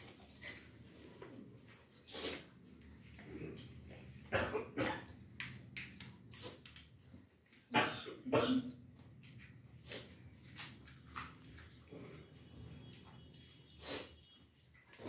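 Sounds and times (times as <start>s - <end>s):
boy coughing: 7.7s - 8.8s.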